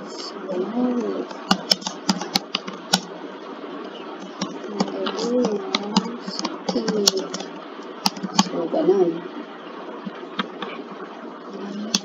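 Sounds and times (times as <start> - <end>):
keyboard keys clicking: 1.5 - 3.1.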